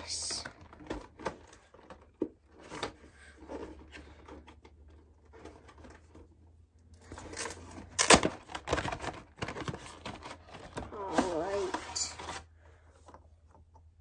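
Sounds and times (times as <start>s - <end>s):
packaging rustling and crinkling: 7.0s - 12.5s.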